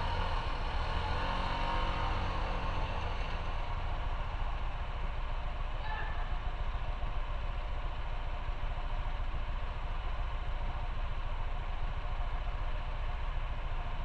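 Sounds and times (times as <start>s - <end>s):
motorcycle engine idling: 3.4s - 14.0s.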